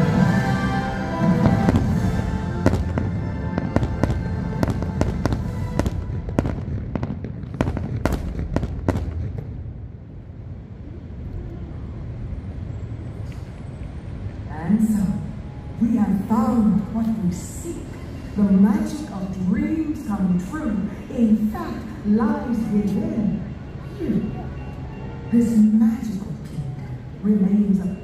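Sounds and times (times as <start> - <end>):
show music: 0.0 - 6.5
low rumble: 0.0 - 16.9
fireworks bangs and crackles: 1.2 - 10.0.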